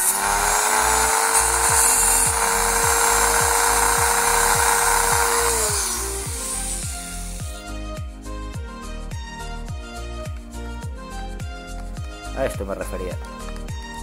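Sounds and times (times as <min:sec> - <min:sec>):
plastic cutting hiss: 0:00.0 - 0:07.7
power tool motor whine: 0:00.0 - 0:07.7.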